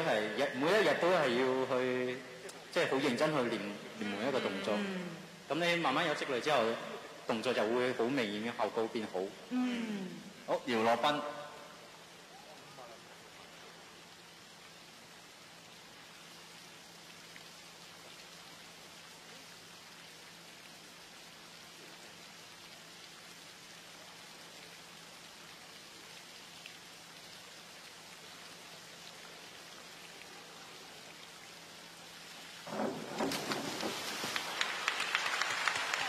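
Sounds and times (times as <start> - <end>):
faint low hum: 0.0 - 36.0
water hissing: 32.1 - 35.0.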